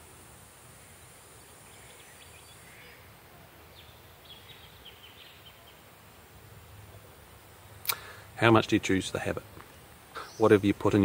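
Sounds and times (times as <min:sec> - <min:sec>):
low background hiss: 0:00.0 - 0:11.0
faint high chirping calls: 0:00.8 - 0:06.0, 0:09.6 - 0:11.0.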